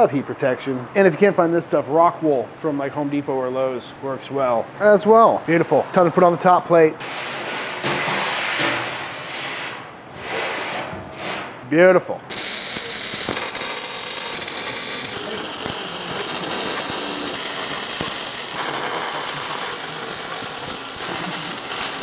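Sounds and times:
welding arc crackling: 0:12.3 - 0:22.0.

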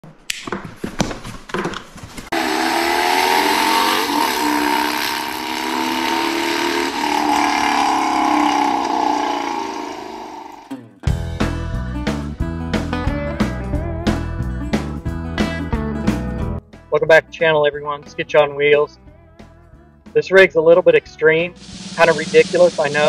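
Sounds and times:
motorcycle engine running: 0:02.4 - 0:10.7.

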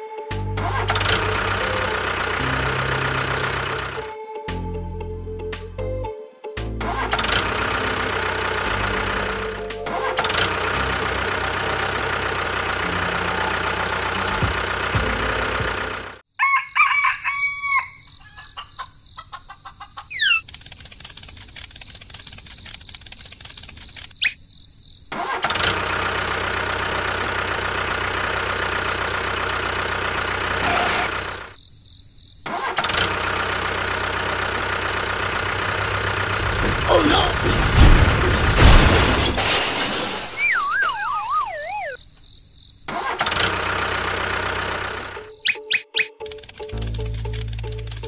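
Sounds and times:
tractor engine running: 0:00.3 - 0:04.1, 0:06.7 - 0:16.3, 0:20.1 - 0:24.2, 0:25.1 - 0:31.6, 0:32.5 - 0:39.6, 0:42.9 - 0:48.0
rooster crowing: 0:16.3 - 0:20.2.

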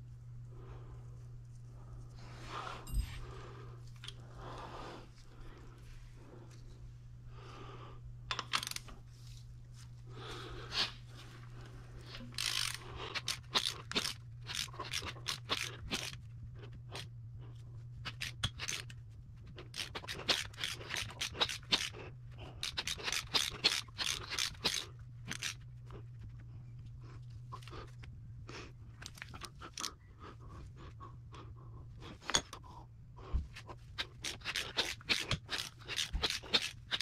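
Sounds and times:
steady low hum: 0:00.0 - 0:37.0
hands scraping and clicking on metal: 0:18.0 - 0:26.8, 0:33.5 - 0:37.0.

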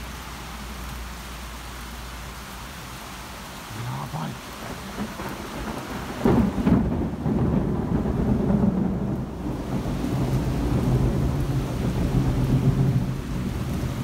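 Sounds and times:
rain hissing: 0:00.0 - 0:14.0
thunder crack and rumble: 0:04.6 - 0:14.0.

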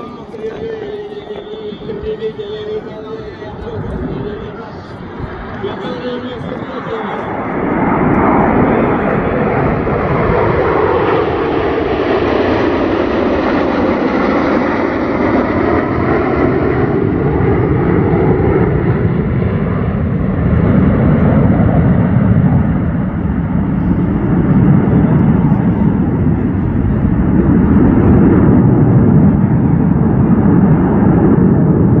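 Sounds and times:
fighter jets flying over: 0:00.0 - 0:32.0.

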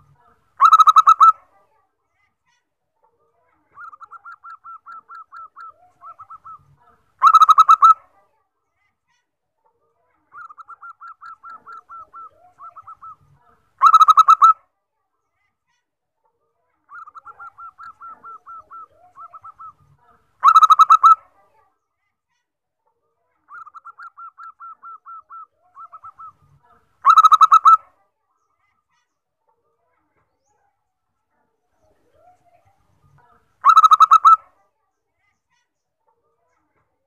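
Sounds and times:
dove cooing: 0:03.8 - 0:08.0, 0:10.4 - 0:13.2, 0:16.9 - 0:19.8.

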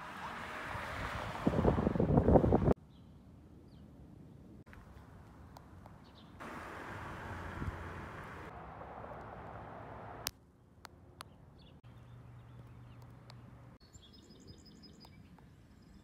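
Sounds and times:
small birds chirping: 0:11.2 - 0:16.0.

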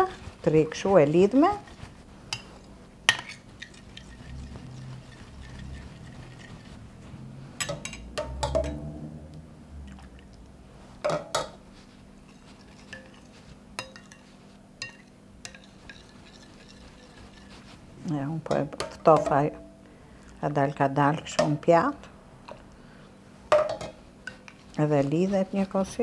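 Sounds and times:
spoon clinking in ceramic bowl: 0:13.8 - 0:17.2.

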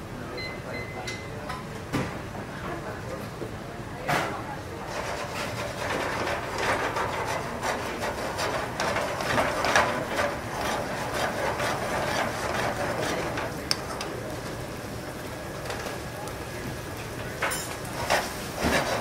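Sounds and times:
spoon scraping a frying pan: 0:04.9 - 0:13.6.

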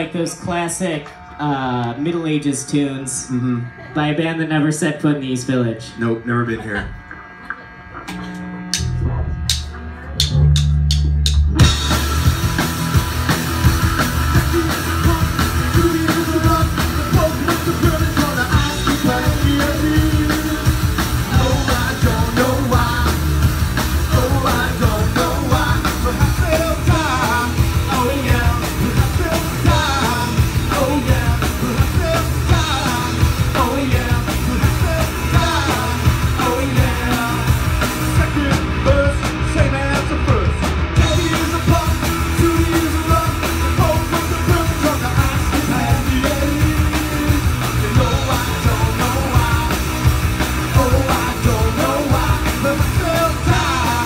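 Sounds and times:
live rock band playing: 0:08.2 - 0:54.0
lead vocal singing: 0:14.2 - 0:54.0.

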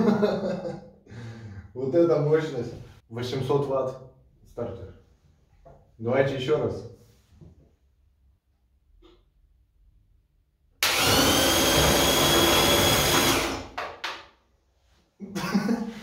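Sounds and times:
electric motor high whine: 0:10.8 - 0:13.6.

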